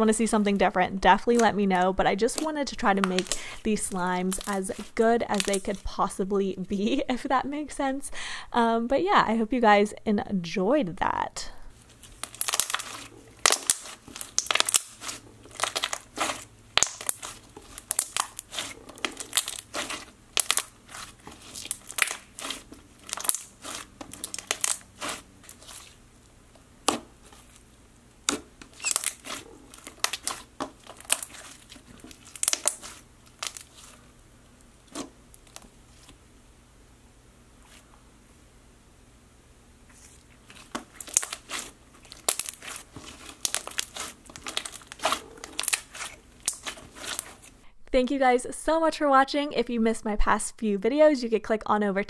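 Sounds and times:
slime popping and crackling: 0:02.3 - 0:03.4, 0:04.2 - 0:05.8, 0:12.0 - 0:26.0, 0:28.2 - 0:34.0, 0:40.4 - 0:47.6.

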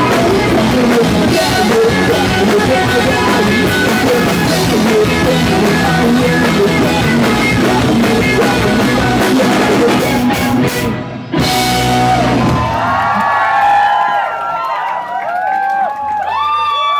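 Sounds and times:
live rock band playing: 0:00.0 - 0:13.0.

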